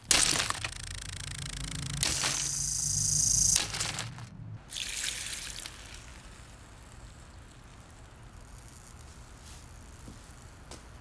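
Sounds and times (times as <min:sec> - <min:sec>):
electric fan motor humming: 0:00.0 - 0:04.6.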